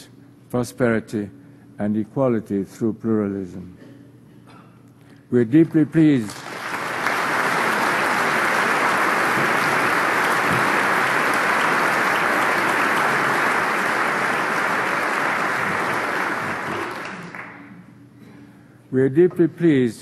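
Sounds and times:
large audience applauding: 6.1 - 17.7.

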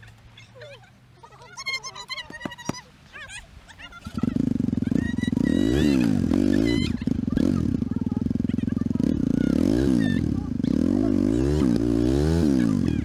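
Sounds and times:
motorcycle engine revving: 4.0 - 13.0.

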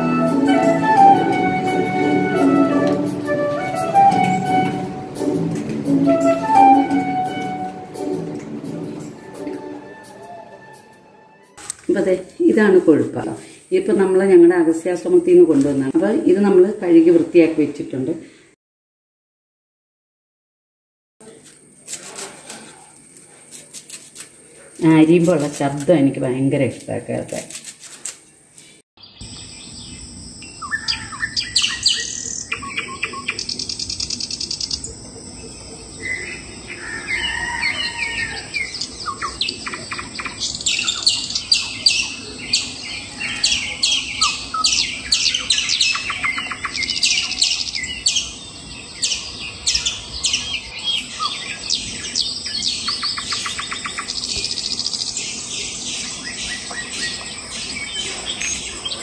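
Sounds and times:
birds chirping and trilling: 28.3 - 59.0.

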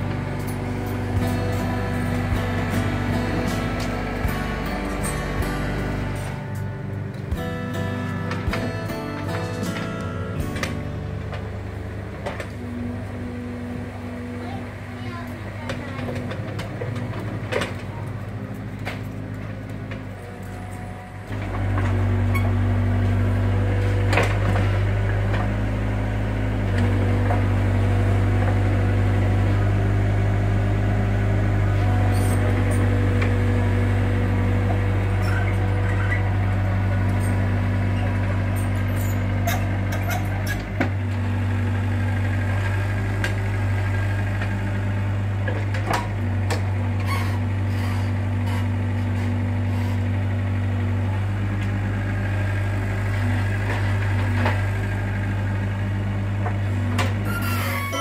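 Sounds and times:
excavator diesel engine under load: 0.0 - 58.0.

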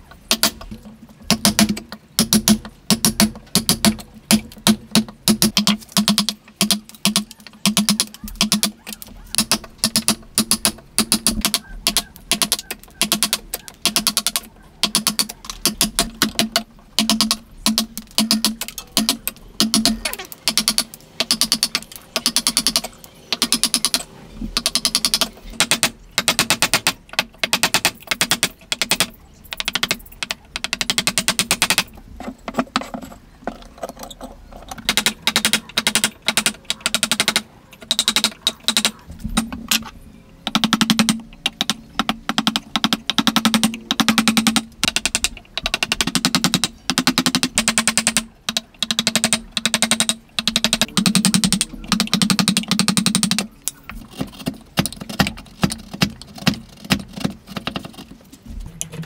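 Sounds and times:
hammer tapping a chisel into wood: 1.3 - 24.0, 40.5 - 53.5.

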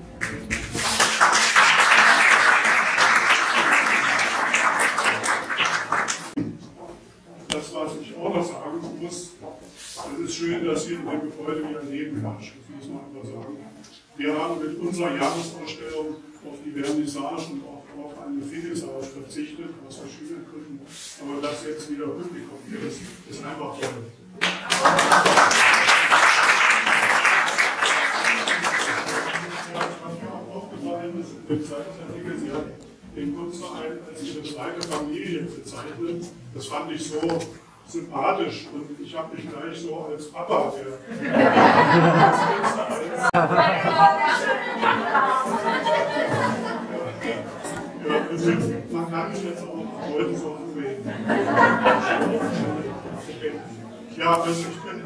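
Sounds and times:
audience applauding: 0.0 - 6.4, 24.4 - 30.0.

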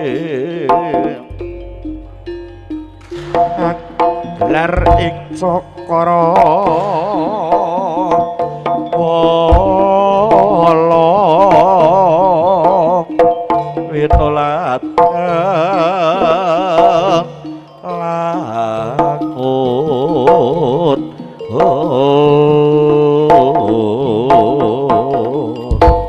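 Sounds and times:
hand drum pattern: 0.0 - 26.0
wavering high lead melody: 1.0 - 26.0
deep low drum strokes: 1.3 - 7.7.

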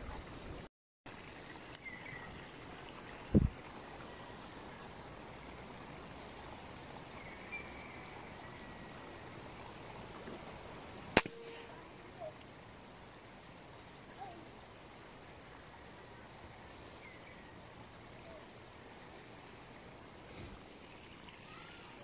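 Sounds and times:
faint outdoor background noise: 0.0 - 22.0
air rifle shot: 11.2 - 11.7.

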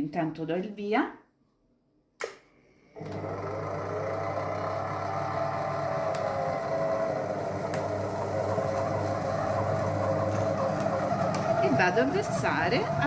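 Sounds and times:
food processor motor humming: 3.0 - 13.0.

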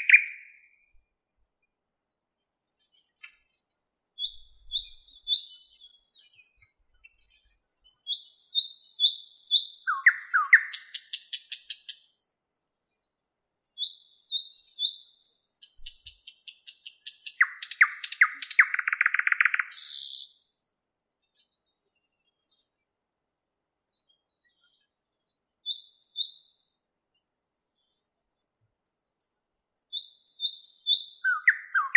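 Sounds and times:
bird singing whistled notes: 0.0 - 1.0, 4.0 - 12.1, 13.6 - 20.6, 23.9 - 26.8, 28.8 - 31.9.

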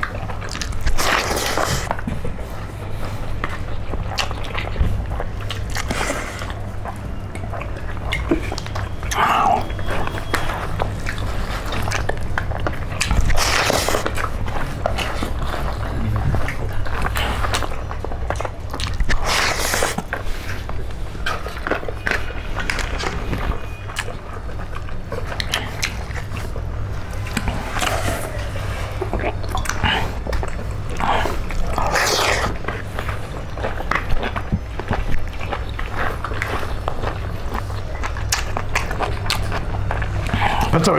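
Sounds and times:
chewing and biting: 0.0 - 40.9
steady low hum: 0.0 - 40.9
wet mouth clicks and smacks: 29.2 - 32.9.

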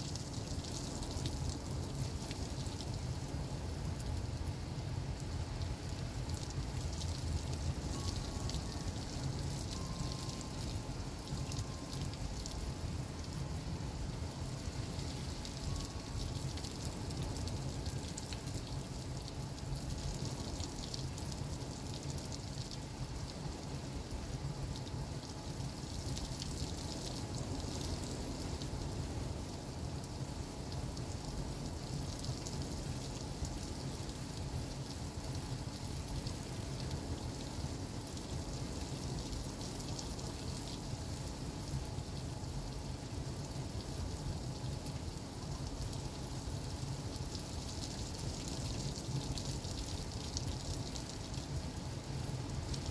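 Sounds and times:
heavy rain downpour: 0.0 - 52.9.

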